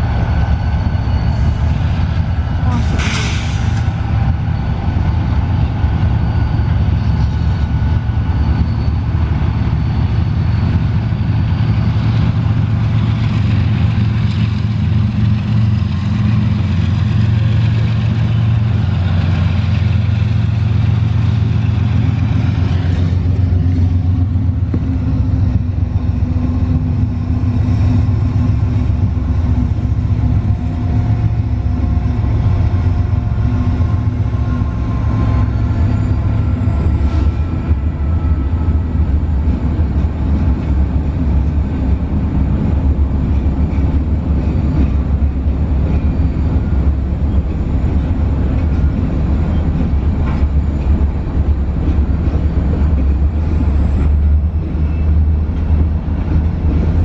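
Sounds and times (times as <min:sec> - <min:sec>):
diesel locomotive engine rumble: 0:00.0 - 0:57.0.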